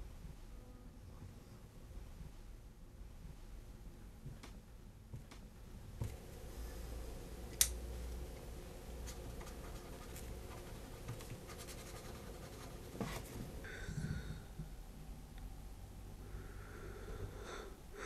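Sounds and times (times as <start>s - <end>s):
pen scratching on paper: 9.0s - 13.4s.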